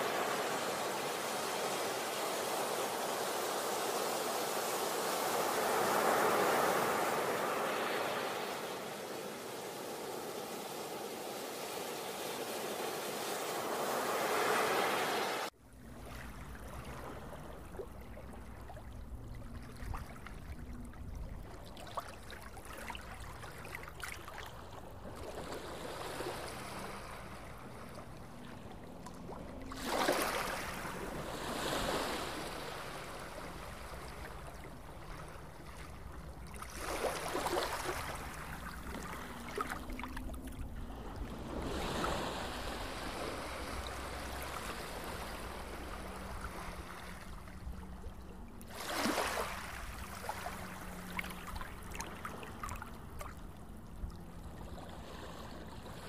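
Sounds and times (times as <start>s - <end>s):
surf breaking on a beach: 0.0s - 15.5s, 29.8s - 40.2s, 40.9s - 47.6s.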